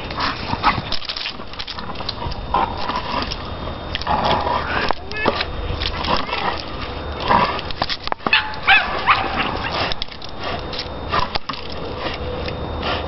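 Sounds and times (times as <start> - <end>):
dog whining and yipping: 8.3 - 9.6.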